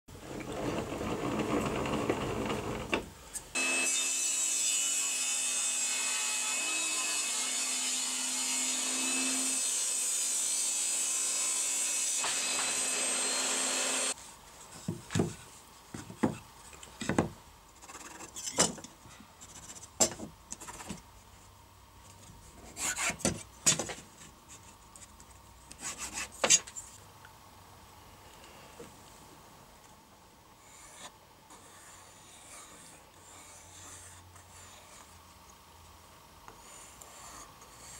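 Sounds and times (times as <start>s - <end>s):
table saw cutting board: 0.2s - 3.0s, 3.6s - 14.2s.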